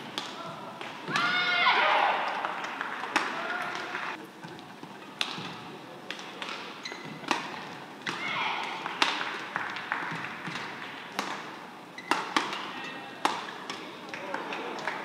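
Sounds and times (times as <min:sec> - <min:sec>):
rackets striking shuttlecock: 0:05.2 - 0:09.4, 0:10.1 - 0:13.9
shoe squeaks: 0:06.8 - 0:07.2, 0:12.0 - 0:12.2.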